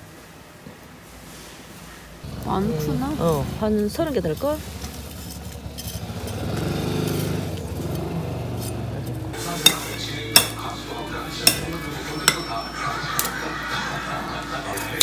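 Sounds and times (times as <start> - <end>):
metal utensils clinking on plate: 4.2 - 13.6, 14.7 - 15.0.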